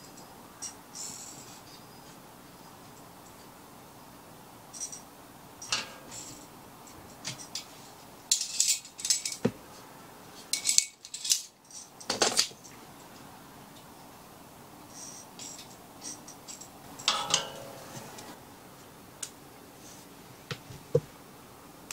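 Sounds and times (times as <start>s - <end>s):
metal tongs clinking on stove: 4.7s - 7.7s, 8.3s - 9.4s, 10.5s - 12.5s, 15.0s - 17.9s.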